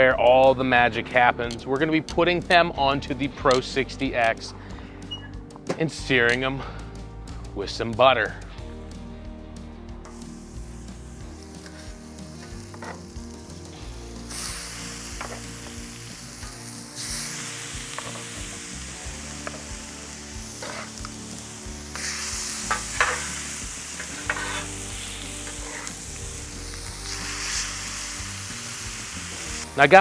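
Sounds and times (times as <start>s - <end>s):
steaks sizzling on a griddle: 10.1s - 30.0s
metal spatula scraping griddle: 20.6s - 21.1s, 22.0s - 24.8s, 25.4s - 26.0s.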